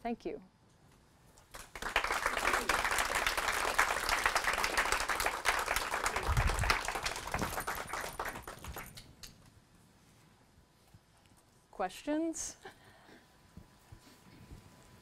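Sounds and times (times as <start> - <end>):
audience applauding: 1.5 - 9.1.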